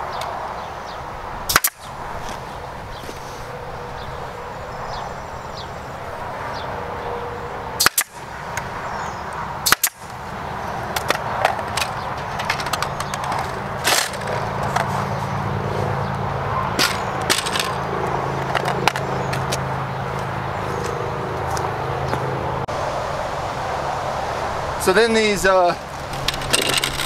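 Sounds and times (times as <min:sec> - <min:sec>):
pneumatic stapler bangs: 0:07.8 - 0:08.1, 0:09.6 - 0:10.0
cage being handled clicks and knocks: 0:11.0 - 0:14.9.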